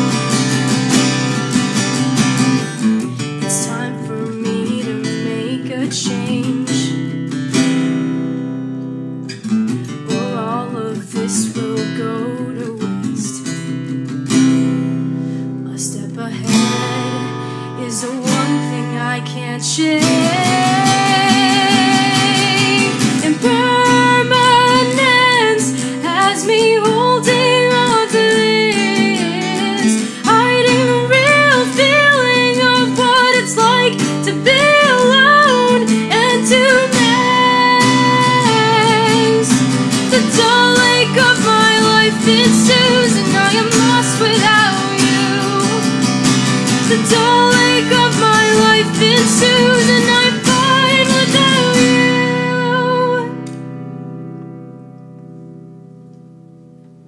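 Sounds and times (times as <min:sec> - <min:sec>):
acoustic guitar: 0:00.0 - 0:57.0
woman singing: 0:03.3 - 0:07.4, 0:10.0 - 0:53.7.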